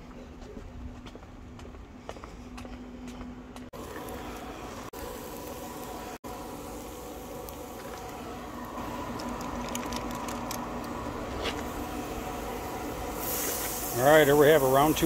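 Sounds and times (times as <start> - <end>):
steady low hum: 0.0 - 15.0
meat crackling on a grill: 3.8 - 15.0.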